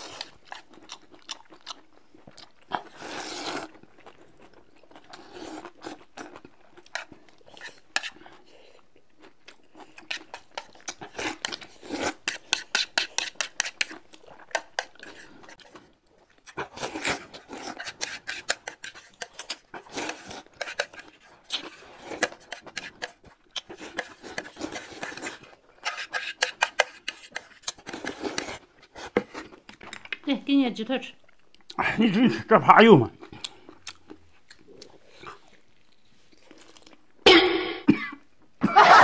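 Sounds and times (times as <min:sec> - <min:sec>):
chewing: 0:00.0 - 0:30.2, 0:33.2 - 0:37.2
slurping noodles: 0:02.8 - 0:03.8, 0:16.5 - 0:29.6.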